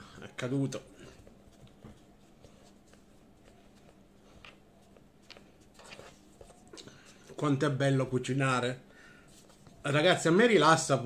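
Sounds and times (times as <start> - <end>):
hands rolling dough on wood: 0.4 - 8.6.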